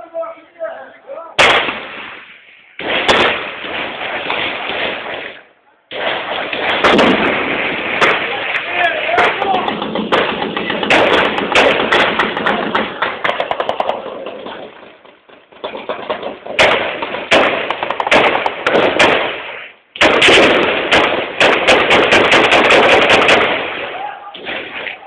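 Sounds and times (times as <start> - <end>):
distorted gunfire cracks: 1.4 - 14.7, 15.6 - 25.0.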